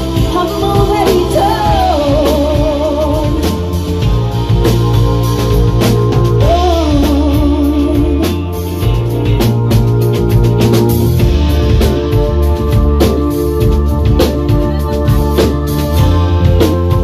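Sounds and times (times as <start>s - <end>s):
woman singing lead: 0.0s - 4.6s, 6.3s - 9.4s, 13.0s - 17.0s
drum kit: 0.0s - 17.0s
electric guitar: 0.0s - 17.0s.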